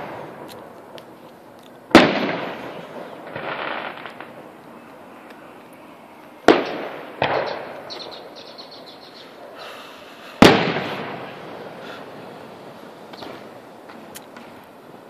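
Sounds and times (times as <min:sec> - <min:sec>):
firework bang: 0:00.0 - 0:00.6, 0:01.9 - 0:04.4, 0:06.4 - 0:08.2, 0:10.4 - 0:11.9
firework crackles: 0:00.0 - 0:15.0
firework boom: 0:10.4 - 0:11.7.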